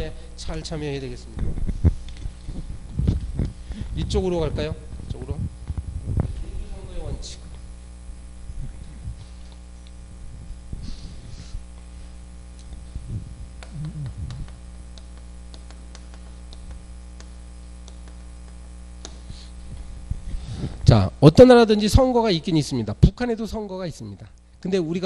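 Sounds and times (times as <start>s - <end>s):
steady electrical hum: 0.0s - 25.0s
chalk tapping on chalkboard: 14.3s - 19.5s.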